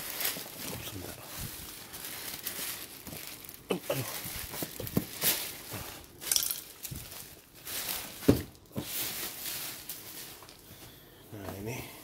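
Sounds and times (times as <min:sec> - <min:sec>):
plastic wrapping crackling: 0:00.0 - 0:10.7.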